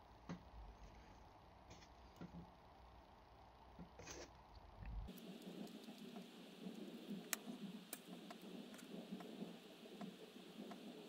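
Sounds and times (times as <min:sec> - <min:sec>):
soft rustling of wadding: 0:04.0 - 0:11.0.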